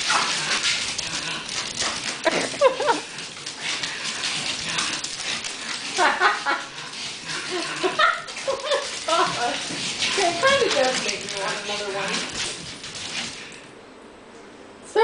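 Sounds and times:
dog claws clicking on hardwood: 8.3s - 13.6s.

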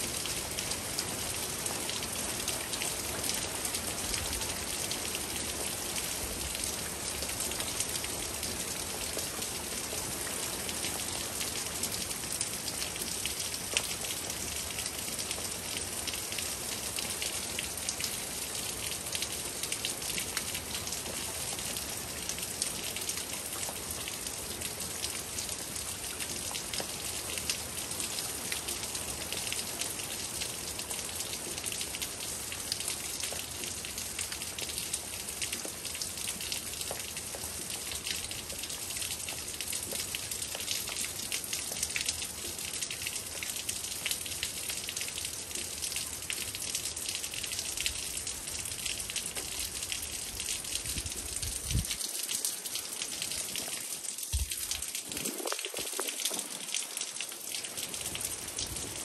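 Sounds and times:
steady rain: 0.0s - 59.0s
raindrops ticking: 34.5s - 59.0s.

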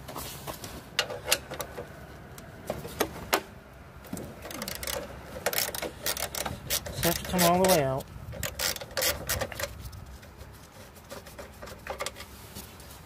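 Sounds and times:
ratcheting wrench clicking: 4.4s - 9.7s.

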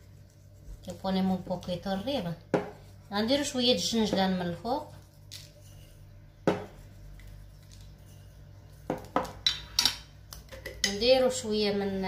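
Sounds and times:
kitchenware clinking: 8.9s - 11.2s.

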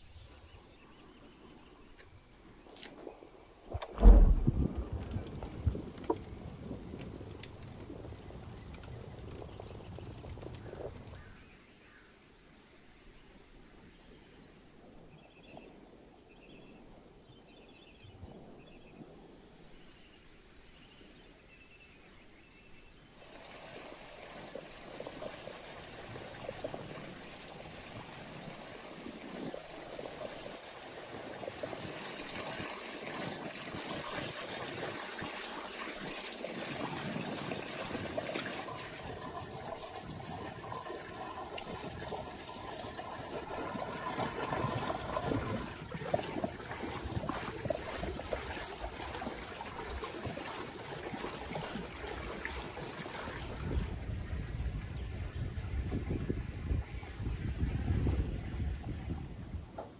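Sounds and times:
water pouring from spout: 23.2s - 54.6s.

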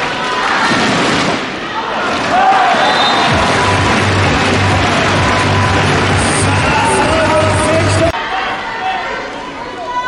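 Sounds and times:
crowd cheering: 0.0s - 10.0s
music with pulsing low beat: 3.3s - 8.1s.

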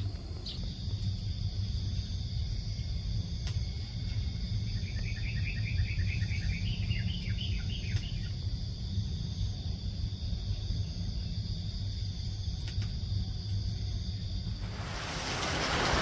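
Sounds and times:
high insect drone: 0.0s - 16.0s
small bird chirping: 4.7s - 8.3s
low outdoor rumble: 8.5s - 16.0s.

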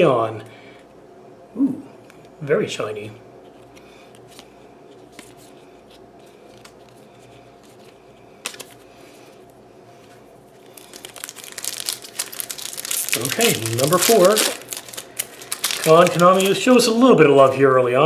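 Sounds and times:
foil wrapper crinkling and tearing: 10.6s - 17.0s.

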